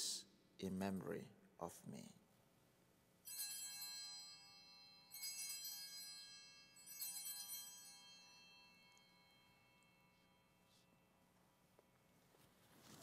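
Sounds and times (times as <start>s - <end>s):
small bells jangling: 3.3s - 11.0s.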